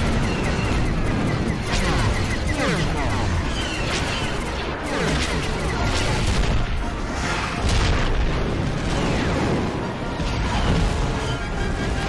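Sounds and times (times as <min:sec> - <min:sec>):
explosions and booms: 0:00.0 - 0:11.9.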